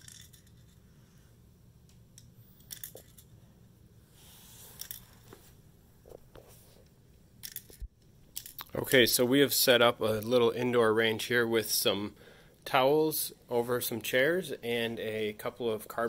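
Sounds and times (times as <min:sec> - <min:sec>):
small metal pellets clicking: 0:00.0 - 0:00.8.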